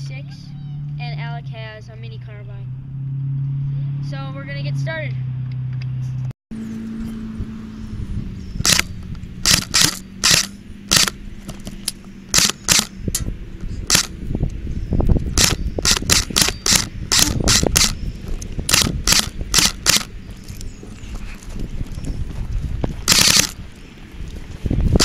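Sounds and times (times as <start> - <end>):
airsoft guns firing: 8.6 - 11.2, 12.3 - 12.9, 23.1 - 23.6.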